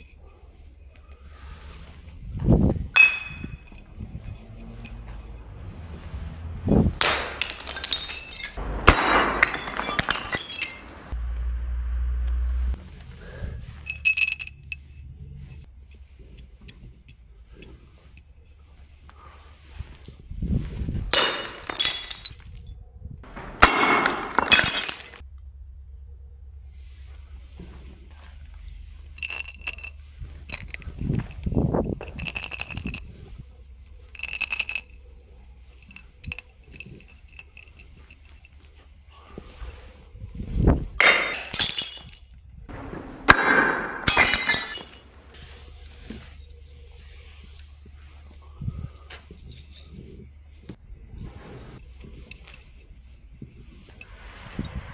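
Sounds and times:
glass bottle clinking: 3.0 - 5.5, 7.0 - 11.0, 21.1 - 22.7, 23.6 - 25.2, 41.0 - 42.4, 43.3 - 45.2
low rumble: 8.4 - 16.0, 25.2 - 32.2, 42.4 - 52.0, 53.8 - 54.9.

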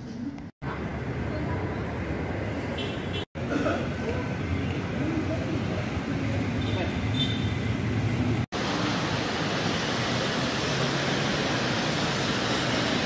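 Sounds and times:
rushing hiss of noise: 8.6 - 13.0.

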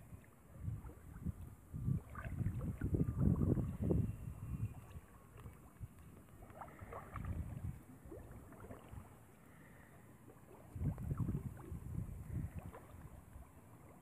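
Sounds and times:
wind buffeting microphone: 0.0 - 6.0, 6.7 - 9.1, 10.7 - 13.4
shallow water sloshing: 0.0 - 14.0.

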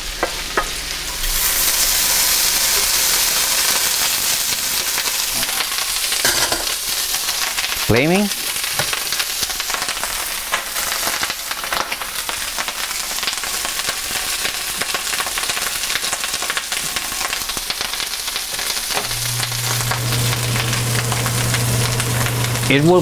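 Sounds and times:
meat sizzling and crackling: 0.0 - 23.0
steady low hum: 19.0 - 23.0.

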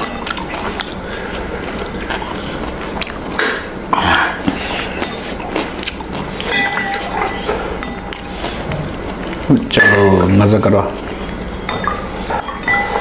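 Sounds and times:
spoon clinking on glass bowls: 6.5 - 8.4, 9.7 - 10.3, 11.4 - 13.0.

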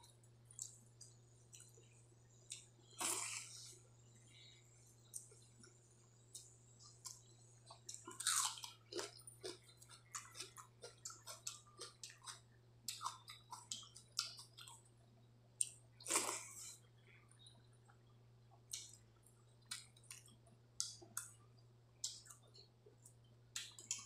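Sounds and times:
wet chewing: 6.4 - 14.8.

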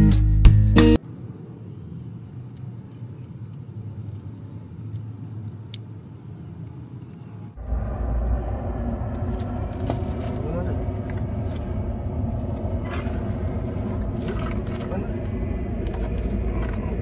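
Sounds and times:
low outdoor rumble: 1.0 - 17.0
faint clicks of plastic parts: 2.5 - 5.9.

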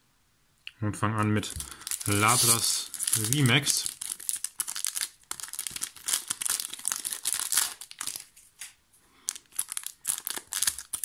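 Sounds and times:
foil wrapper crinkling: 1.5 - 11.0.

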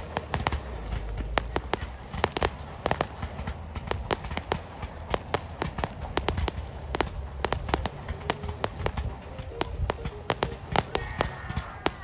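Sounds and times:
campfire crackling and popping: 0.0 - 12.0
low rumble of fire: 0.0 - 12.0.

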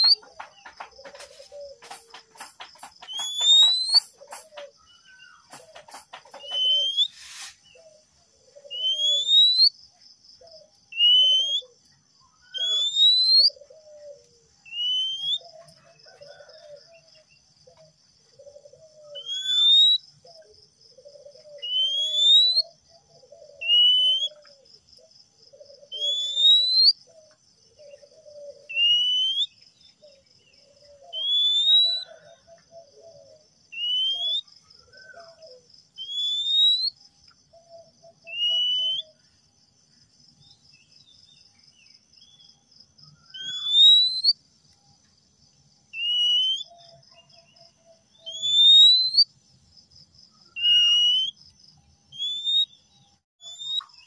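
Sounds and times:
bird whistling: 0.0 - 0.4, 2.9 - 8.0, 8.6 - 9.7, 10.9 - 11.7, 12.4 - 13.7, 14.7 - 15.5, 19.0 - 20.0, 21.6 - 22.8, 23.6 - 24.5, 25.8 - 27.0, 28.3 - 29.6, 31.0 - 32.2, 33.7 - 37.0, 38.2 - 39.2, 43.2 - 44.4, 45.9 - 46.9, 48.2 - 49.3, 50.4 - 51.4, 52.1 - 52.8, 53.4 - 54.0.

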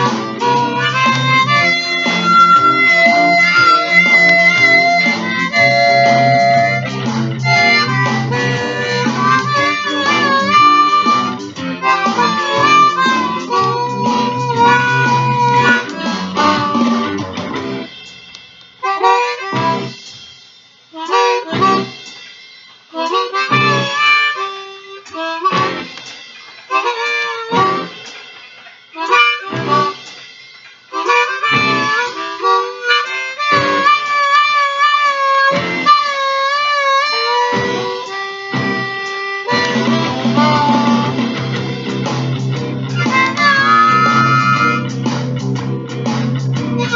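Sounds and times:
backing chords: 0.0 - 18.0, 36.6 - 46.9
blues harmonica: 0.0 - 46.9.

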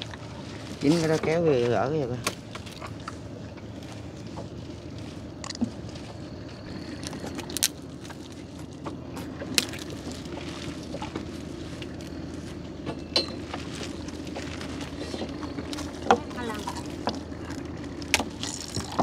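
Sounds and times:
net rustling and crackling: 0.0 - 19.0
steady low hum: 0.0 - 19.0.

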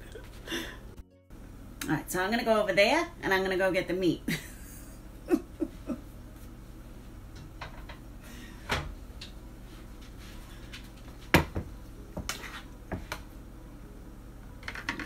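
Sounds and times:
kitchen knock: 11.3 - 12.3.

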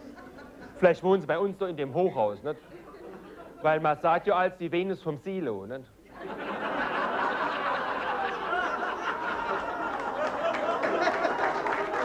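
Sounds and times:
audience laughing: 2.6 - 3.8, 6.1 - 12.0.

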